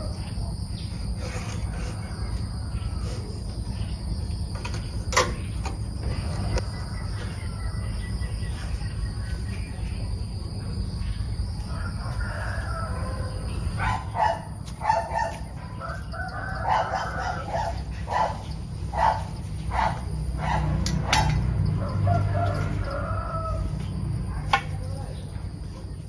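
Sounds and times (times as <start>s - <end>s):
rooster crowing: 1.7s - 3.5s, 6.4s - 8.3s, 11.6s - 14.3s, 14.9s - 18.3s, 19.8s - 24.4s.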